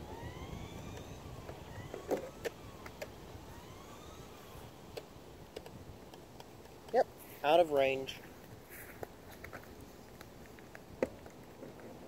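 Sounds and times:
electric rc car motor whining: 0.0s - 5.8s.

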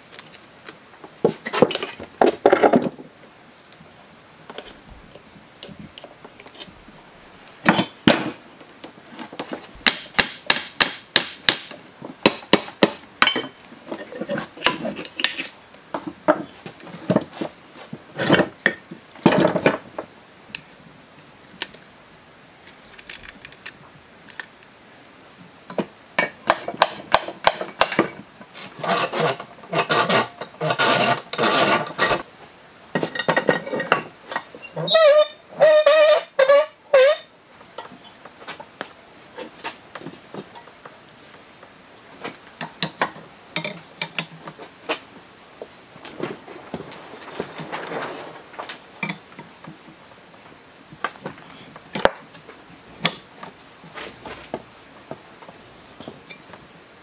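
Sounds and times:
metal tools clanking on steel: 13.2s - 15.6s, 33.0s - 37.2s, 46.0s - 49.5s.

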